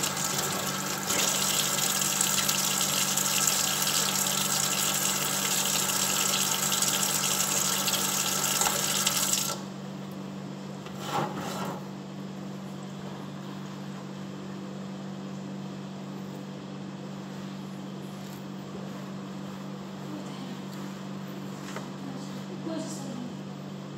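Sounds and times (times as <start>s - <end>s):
faucet running into steel sink: 0.0s - 9.6s.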